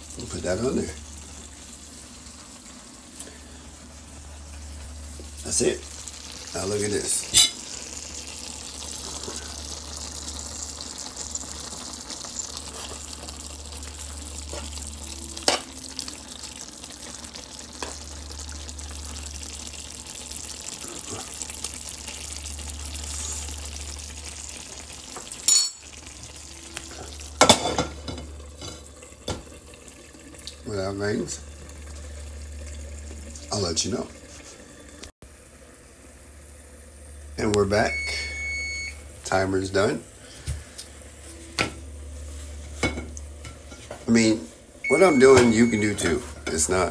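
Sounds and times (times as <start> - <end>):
low hum: 0.0 - 7.2, 12.4 - 24.8, 30.0 - 45.0
stew bubbling and sizzling: 0.0 - 46.9.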